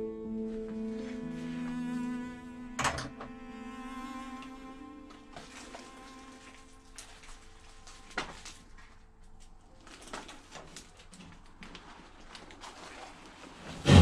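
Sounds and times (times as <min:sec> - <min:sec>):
faint string music: 0:00.0 - 0:12.4
footsteps through debris: 0:05.0 - 0:14.0
gloved hand rustling through junk: 0:05.1 - 0:14.0.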